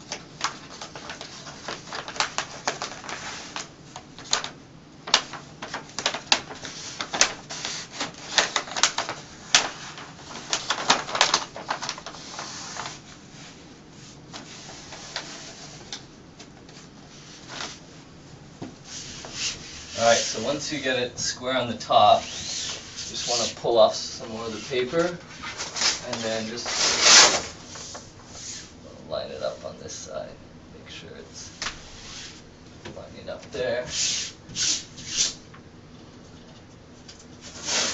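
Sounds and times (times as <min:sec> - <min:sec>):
wax paper crinkling and crackling: 0:00.0 - 0:13.2, 0:19.0 - 0:21.0, 0:21.9 - 0:28.2.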